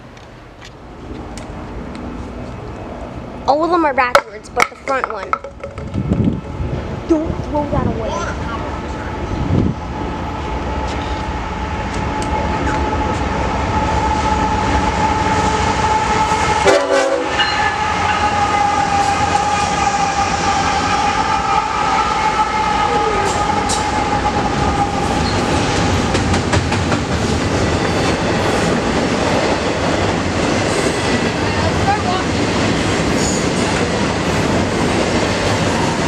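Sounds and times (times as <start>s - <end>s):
wheels clattering over rails: 4.0s - 6.5s
train air horn chord: 15.0s - 25.1s.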